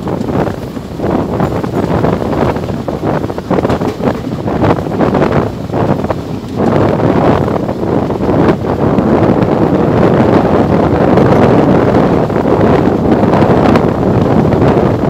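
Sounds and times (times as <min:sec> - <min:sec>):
train running noise: 0:00.0 - 0:15.0
wind buffeting microphone: 0:00.0 - 0:15.0.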